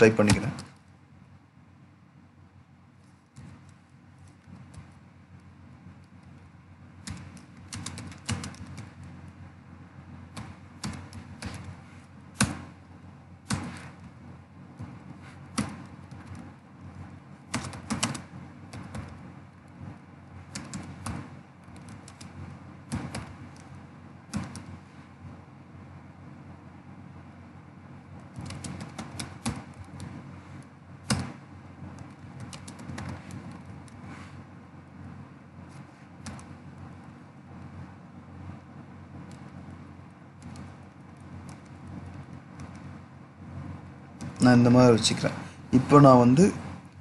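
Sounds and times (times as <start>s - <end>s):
computer keyboard typing: 7.0s - 9.2s, 10.3s - 11.8s, 15.5s - 19.2s, 20.4s - 24.8s, 28.2s - 30.2s, 31.0s - 34.0s, 36.2s - 36.6s, 40.4s - 42.9s.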